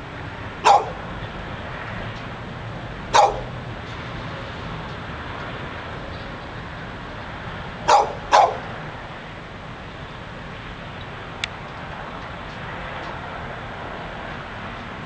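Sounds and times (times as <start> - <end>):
steady background noise: 0.0 - 15.0
dog barking: 0.6 - 1.0, 3.1 - 3.6, 7.9 - 8.7.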